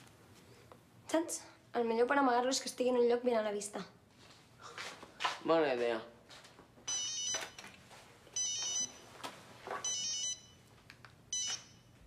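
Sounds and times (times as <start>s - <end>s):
electronic alarm beeping: 6.9s - 7.7s, 8.4s - 9.1s, 9.8s - 10.7s, 11.3s - 12.0s.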